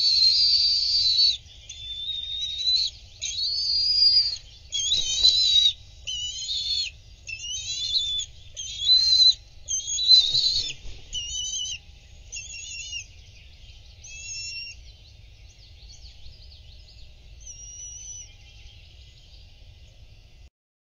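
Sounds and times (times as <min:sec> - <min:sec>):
eagles chittering calls: 0:00.0 - 0:14.8, 0:17.3 - 0:18.4
wings flapping rustle: 0:04.7 - 0:11.8.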